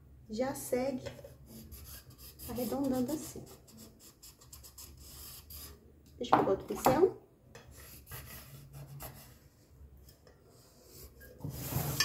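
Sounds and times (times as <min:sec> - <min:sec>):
marker scratching on paper: 0:01.5 - 0:05.8.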